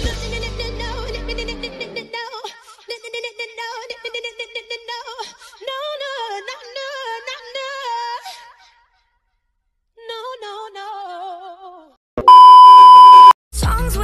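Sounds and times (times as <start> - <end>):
loud steady bleep tone: 12.2 - 13.4.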